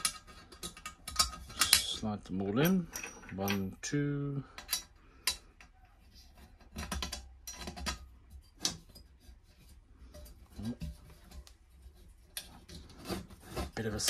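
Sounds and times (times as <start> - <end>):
metal latch pieces clicking and scraping: 0.0 - 9.2.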